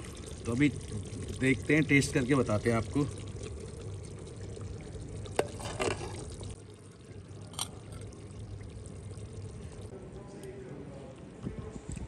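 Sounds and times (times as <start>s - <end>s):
low background hum: 0.0s - 12.0s
metal ladle clink: 7.5s - 7.8s.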